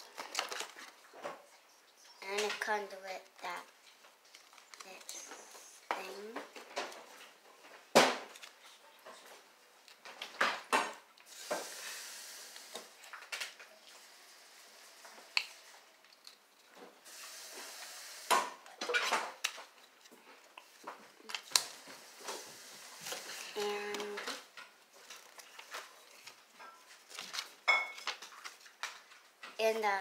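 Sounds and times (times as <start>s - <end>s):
packaging rustling: 0.0s - 1.1s, 4.2s - 5.2s, 19.4s - 29.3s.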